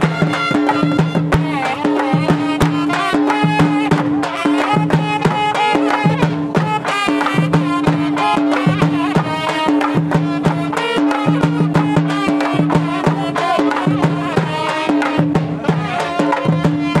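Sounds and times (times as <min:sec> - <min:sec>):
folk devotional music: 0:00.0 - 0:17.0
quick drum beats: 0:00.0 - 0:17.0.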